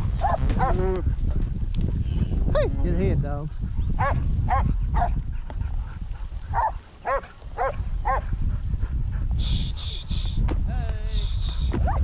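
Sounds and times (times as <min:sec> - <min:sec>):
steady low rumble: 0:00.0 - 0:12.0
dog barking: 0:04.0 - 0:05.2, 0:06.5 - 0:08.3.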